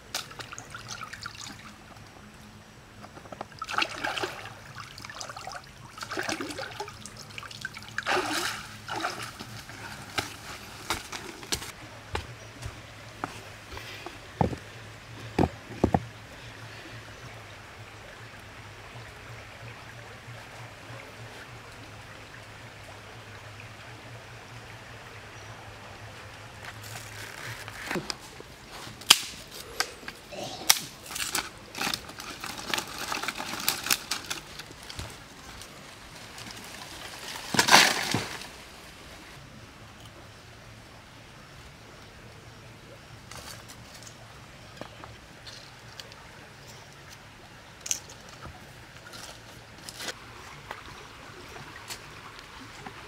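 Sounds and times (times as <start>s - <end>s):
twigs cracking and snapping: 29.0s - 35.7s, 36.4s - 38.5s.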